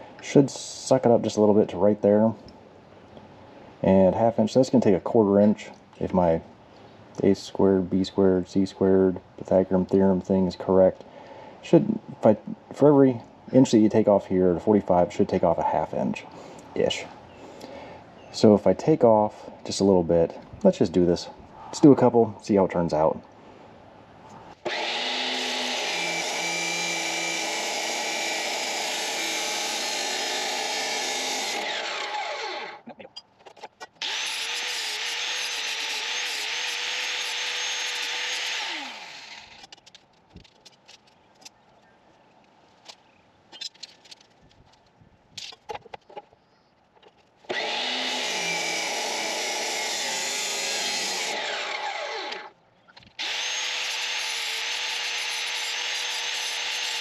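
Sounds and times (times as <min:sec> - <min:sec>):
power saw cutting steel: 0:24.6 - 0:32.8, 0:34.0 - 0:39.7, 0:47.5 - 0:52.5, 0:53.2 - 0:57.0
saw motor winding down: 0:24.6 - 0:32.8, 0:34.0 - 0:39.7, 0:47.5 - 0:52.5, 0:53.2 - 0:57.0.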